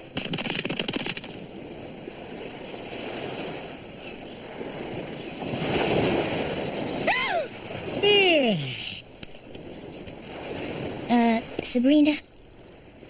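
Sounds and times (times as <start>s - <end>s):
ocean surf washing on beach: 0.0s - 13.0s.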